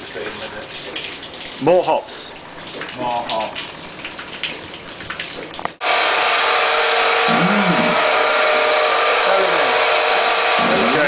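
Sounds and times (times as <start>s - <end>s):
machine whirring and humming: 5.8s - 11.0s.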